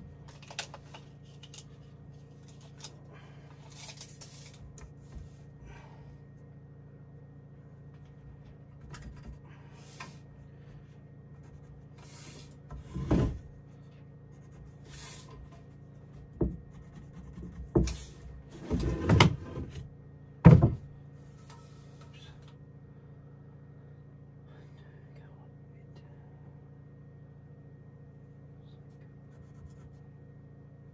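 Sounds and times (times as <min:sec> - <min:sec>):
faint low hum: 0:00.0 - 0:30.9
wooden knocks and thumps: 0:20.4 - 0:20.9.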